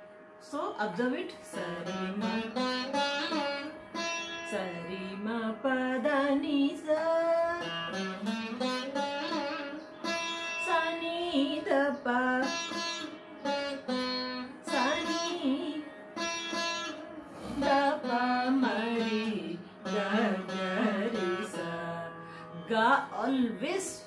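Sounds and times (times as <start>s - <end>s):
plucked veena notes: 0.0s - 24.0s
woman singing: 0.5s - 3.7s, 4.5s - 8.4s, 10.6s - 13.1s, 14.6s - 16.0s, 17.5s - 24.0s.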